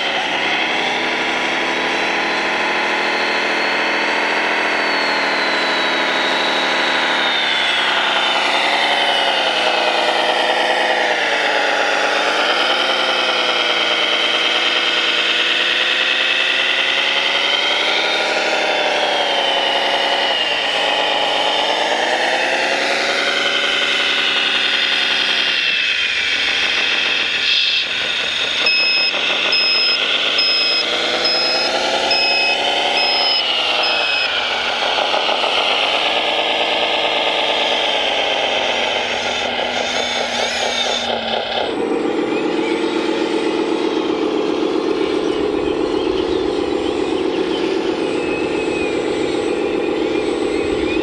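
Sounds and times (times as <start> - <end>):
electric motors and gears whining: 0.0 - 51.0
evenly spaced beeps: 0.0 - 51.0
low hum: 37.7 - 51.0.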